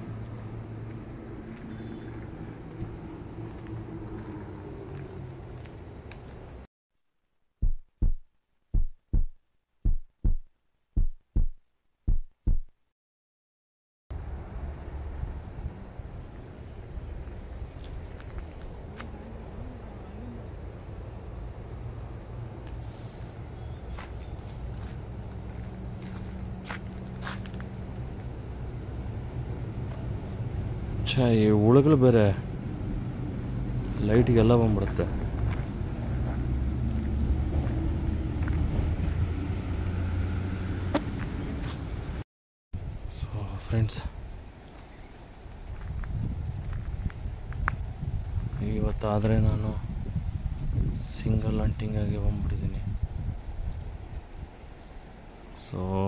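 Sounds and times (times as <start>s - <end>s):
crickets chirring: 0.0s - 6.7s, 14.1s - 42.2s, 42.8s - 56.0s
vehicle engine rumble: 0.0s - 6.7s, 14.2s - 42.2s.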